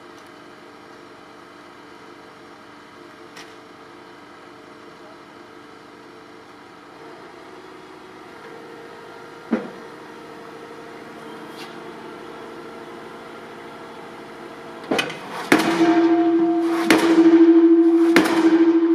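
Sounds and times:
diesel engine running: 0:05.7 - 0:18.9
sharp knock: 0:14.9 - 0:18.9.

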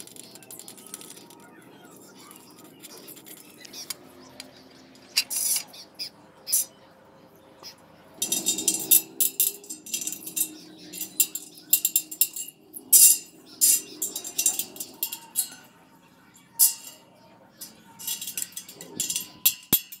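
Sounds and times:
bicycle spokes clinking: 0:08.2 - 0:20.0.

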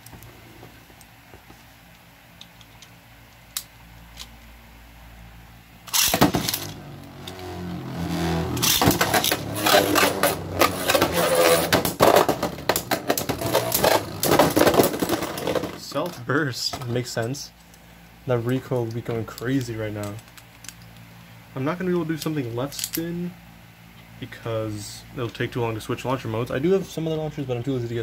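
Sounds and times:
tops whirring on plastic: 0:06.0 - 0:15.8.

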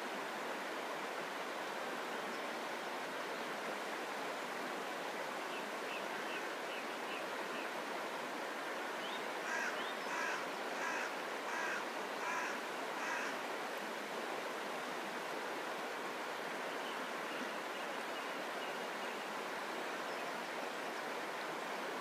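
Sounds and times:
river flowing over stones: 0:00.0 - 0:22.0
crow cawing: 0:09.4 - 0:13.4.

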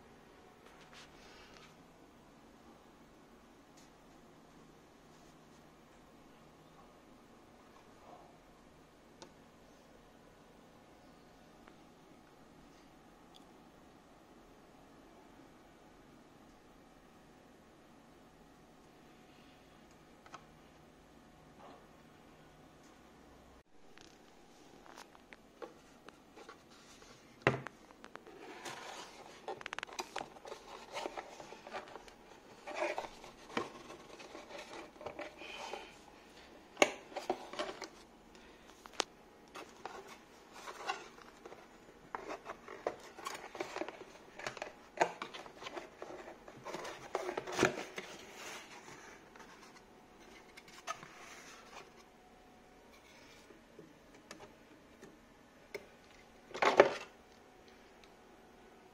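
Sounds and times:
cardboard scraping and rubbing: 0:28.3 - 0:35.4.

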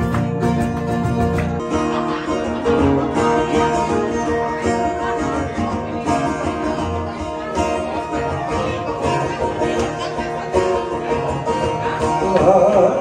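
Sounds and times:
plucked string instrument music: 0:00.0 - 0:13.0.

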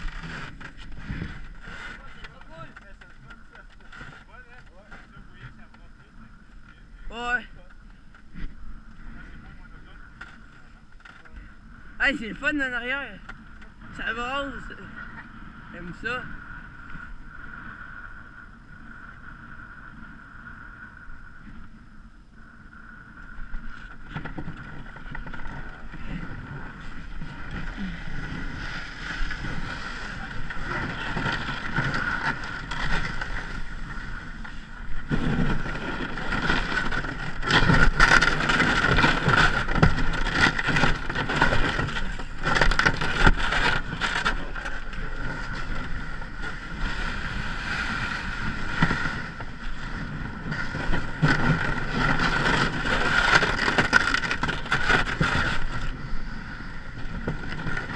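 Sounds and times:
wind on microphone: 0:00.0 - 0:04.1, 0:11.4 - 0:57.9
steady high whine: 0:00.0 - 0:57.9
paddles and ice knocking hull: 0:23.9 - 0:56.0.

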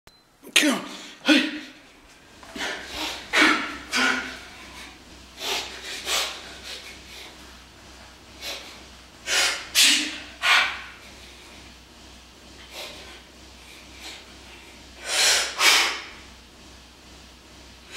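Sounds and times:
sharp forceful breaths and snorts: 0:02.5 - 0:07.6, 0:08.3 - 0:11.7, 0:12.6 - 0:16.2.

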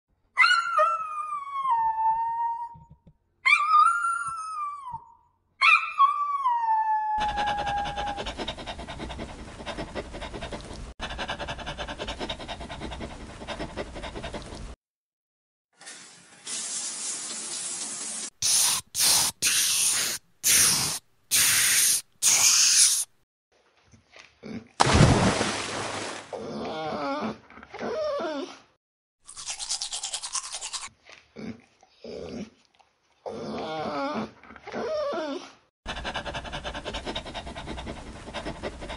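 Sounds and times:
short bursts of hiss: 0:15.8 - 0:23.1.

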